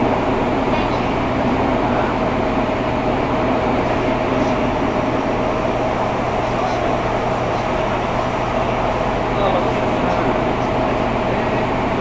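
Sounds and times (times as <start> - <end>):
constant mid-pitched hum: 0.0 - 12.0
train interior rumble: 0.0 - 12.0.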